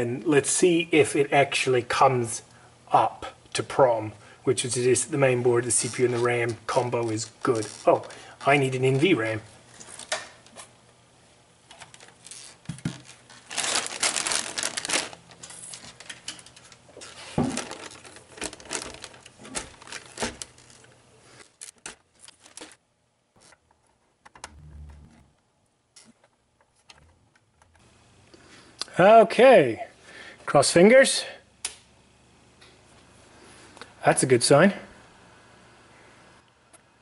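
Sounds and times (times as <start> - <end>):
plastic bag crinkling: 5.6 - 9.0, 11.8 - 22.8.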